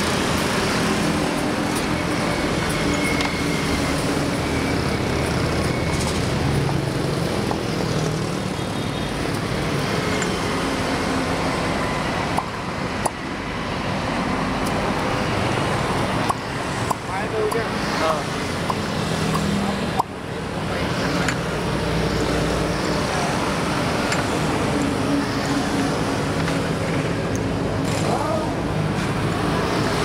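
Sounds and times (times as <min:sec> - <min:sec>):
highway traffic: 0:00.0 - 0:30.0
motorbikes passing: 0:00.0 - 0:30.0
sharp clicks: 0:16.0 - 0:17.7, 0:18.6 - 0:20.2.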